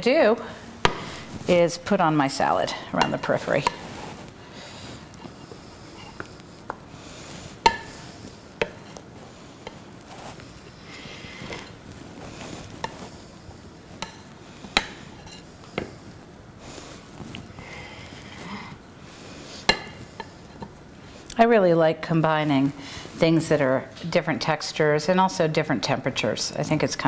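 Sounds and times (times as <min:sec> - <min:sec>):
wooden spatula scraping ceramic bowl: 0:00.8 - 0:04.3.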